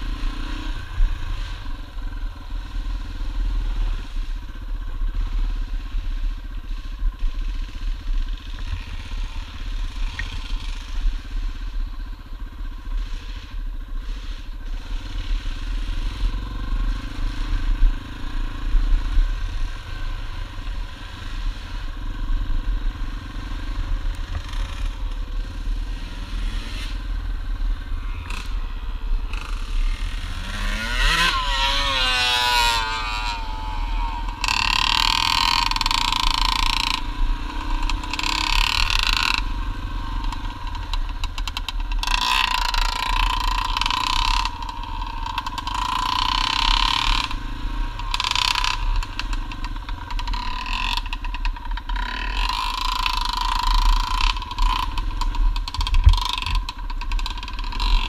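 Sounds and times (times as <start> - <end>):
clatter: 0.0 - 58.0
dirt bike engine running: 0.0 - 58.0
wind: 0.0 - 58.0
wavering engine whine: 14.7 - 51.1.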